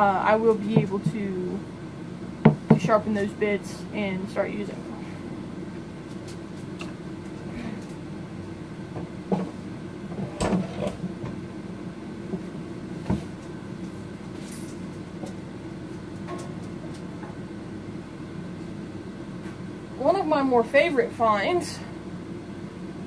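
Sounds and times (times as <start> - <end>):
steady room hum: 0.0 - 23.0
tools knocking on workbench: 2.4 - 2.8.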